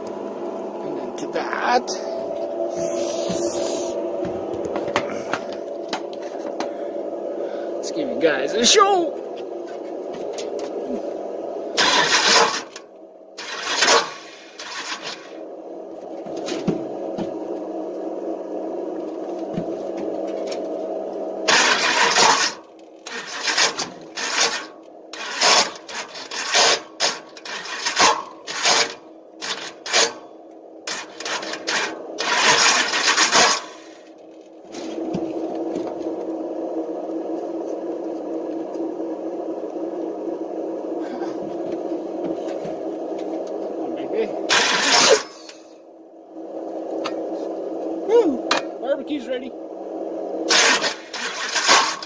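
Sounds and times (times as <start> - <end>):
starter motor whine: 0.0 - 52.0
metallic grinding clashes: 11.7 - 15.4, 21.5 - 34.2, 44.5 - 45.7, 50.5 - 52.0.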